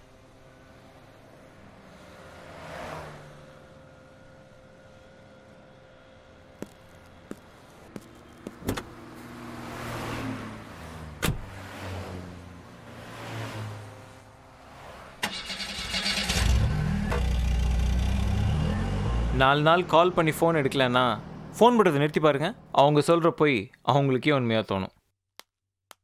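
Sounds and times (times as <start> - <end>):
passing traffic: 0.0 - 22.8
car door clicks: 8.5 - 9.0, 11.2 - 11.5
car door shutting: 8.5 - 9.0, 11.2 - 11.6
car engine starting: 14.7 - 19.6.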